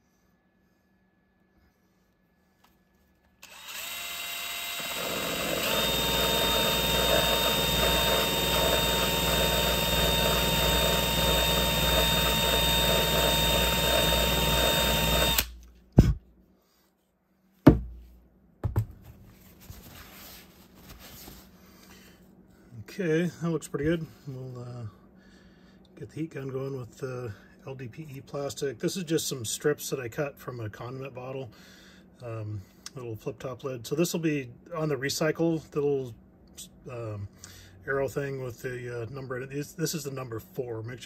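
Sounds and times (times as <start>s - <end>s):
electric drill grinding plastic: 3.4s - 15.6s
short knocks: 17.7s - 19.0s.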